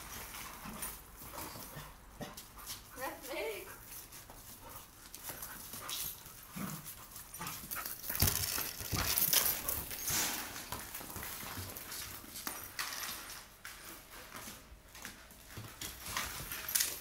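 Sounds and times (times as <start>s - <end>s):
dogs panting: 0.0s - 10.2s
dog claws scrabbling on tiles: 3.8s - 17.0s.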